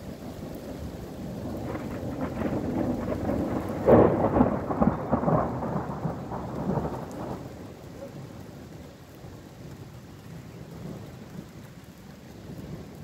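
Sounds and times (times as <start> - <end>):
steady rain: 0.0 - 13.0
thunder rumbling and clapping: 0.5 - 8.6.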